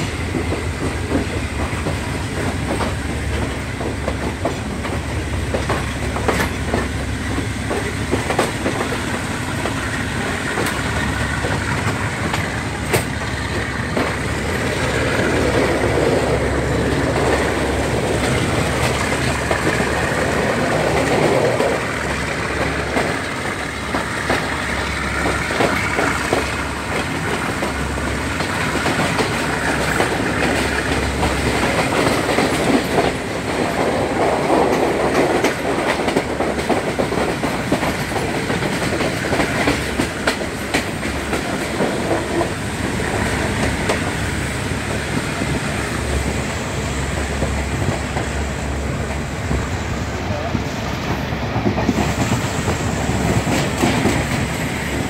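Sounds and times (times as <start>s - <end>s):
train carriages rumbling: 0.0s - 55.0s
wheels clicking over rail joints: 0.3s - 44.2s.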